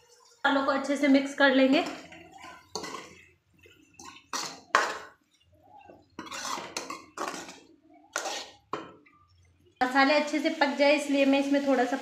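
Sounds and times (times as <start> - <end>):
ladle scraping metal pan: 1.8 - 5.1, 6.0 - 8.8.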